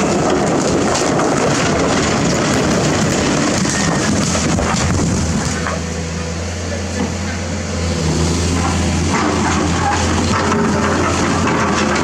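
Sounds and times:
boulders tumbling onto ground: 0.0s - 5.8s
truck engine running: 0.0s - 12.0s.

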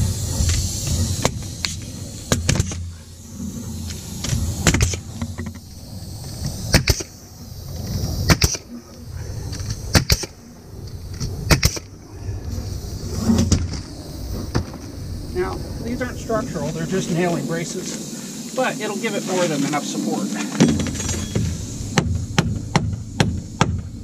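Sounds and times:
low rumble: 0.0s - 19.7s
nail gun firing into wood: 2.3s - 2.8s, 4.6s - 5.0s, 6.7s - 7.1s, 8.3s - 8.7s, 9.9s - 10.3s, 11.5s - 11.9s.

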